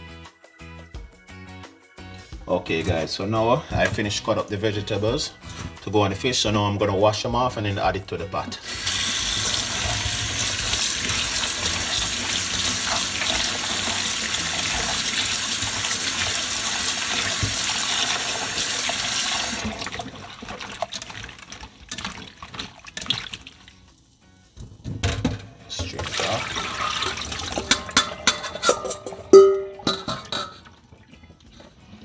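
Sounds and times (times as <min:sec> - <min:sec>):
tap water running into bowl: 0:08.6 - 0:23.9, 0:24.6 - 0:31.8
hands splashing vegetables in water: 0:19.5 - 0:23.9.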